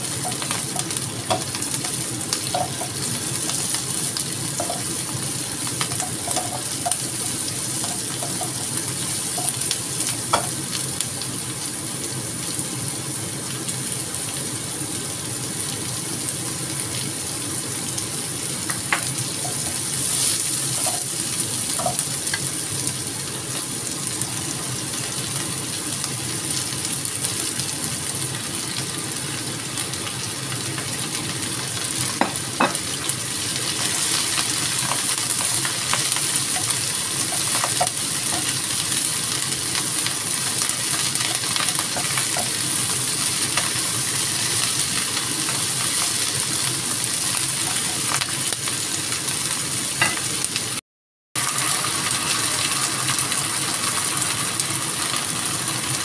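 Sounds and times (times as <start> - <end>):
food sizzling in a wok: 0.0 - 50.8, 51.4 - 56.0
spatula scraping and tapping wok: 5.8 - 7.1, 7.8 - 9.6, 18.9 - 21.2.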